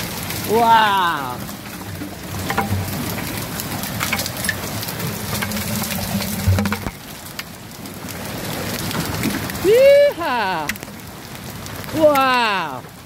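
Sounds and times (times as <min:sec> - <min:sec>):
hailstones clattering: 0:00.0 - 0:13.0
heavy rain hiss: 0:00.0 - 0:13.0.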